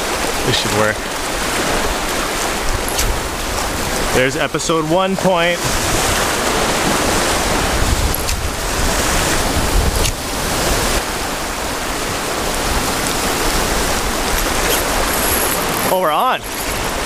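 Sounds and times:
surf on rocky shore: 0.0 - 17.0
wind buffeting microphone: 1.0 - 17.0.

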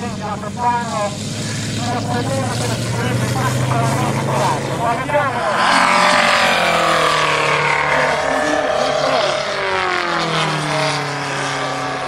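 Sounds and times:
model plane engine passing: 0.0 - 12.0.

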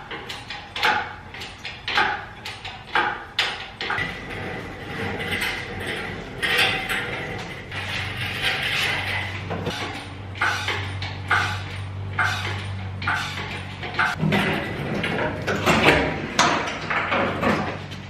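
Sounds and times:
engine hoist chain clanking: 0.0 - 18.0.

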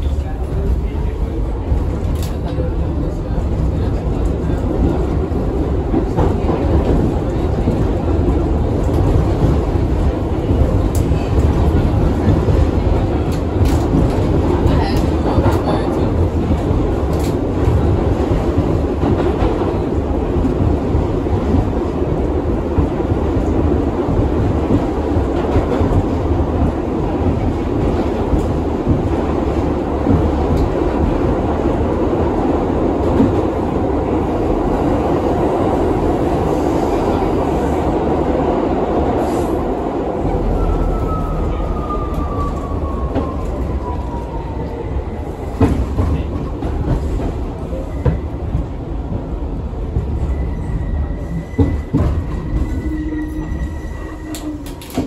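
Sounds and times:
subway train wheels rumbling: 0.0 - 55.0.

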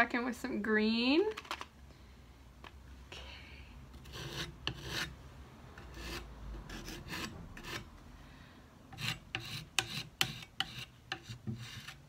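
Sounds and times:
putty knife scraping paint: 4.0 - 5.1, 5.8 - 7.9, 8.9 - 12.0.

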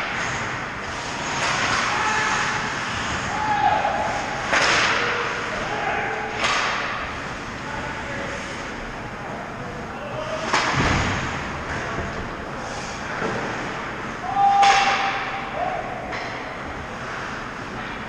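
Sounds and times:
sharp hits echoing in rink: 0.0 - 9.4, 10.0 - 18.0
person shouting: 14.2 - 15.9.

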